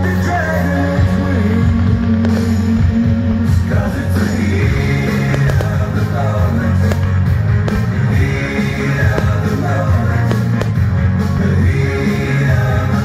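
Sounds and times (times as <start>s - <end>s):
band music with singing: 0.0s - 13.0s
sharp cracks: 1.8s - 11.2s.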